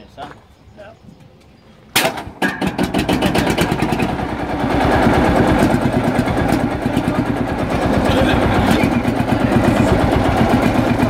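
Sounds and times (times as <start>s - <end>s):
diesel tractor engine starting and running: 2.0s - 11.0s.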